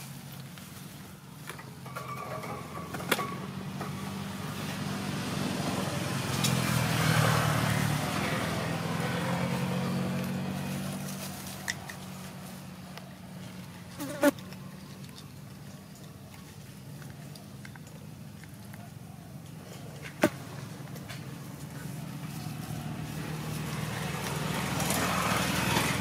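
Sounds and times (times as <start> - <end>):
vehicle engine passing by: 2.0 - 15.8, 19.0 - 26.0.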